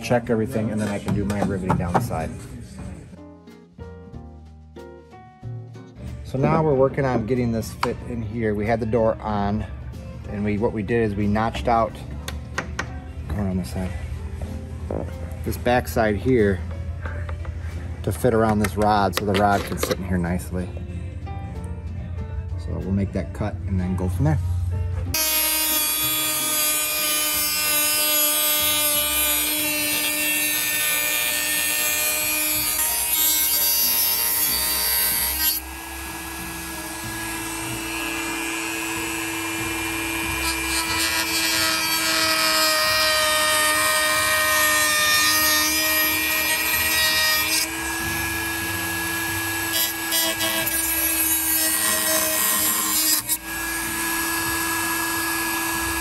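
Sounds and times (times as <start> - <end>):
rotary tool cutting whine: 25.2 - 56.0.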